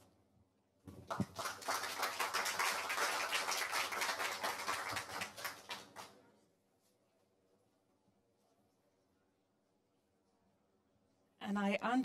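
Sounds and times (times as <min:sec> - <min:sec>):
audience applauding: 0:01.0 - 0:06.2.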